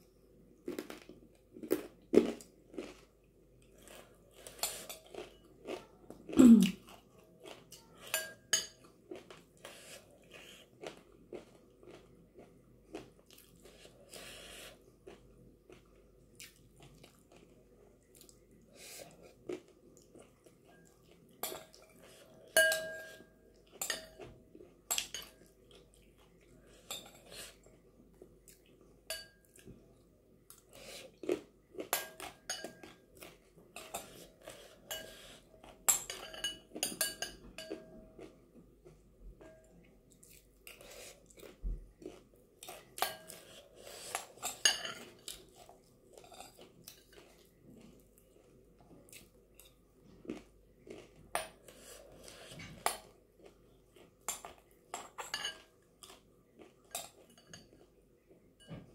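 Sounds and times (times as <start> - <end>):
chewing and mouth sounds: 0.7 - 8.1, 15.0 - 22.5, 40.1 - 58.5
metal spoon clinking on glass bowl: 8.0 - 8.8, 22.6 - 23.2, 35.9 - 37.8, 55.2 - 55.6.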